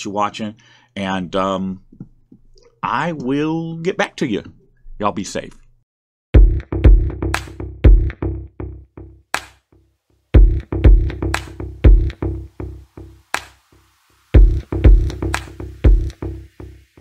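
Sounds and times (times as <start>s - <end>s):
heavy bass kicks: 6.4s - 8.6s, 10.4s - 12.5s, 14.4s - 16.4s
sharp snare hits: 9.4s - 9.6s
electronic music: 10.4s - 17.0s.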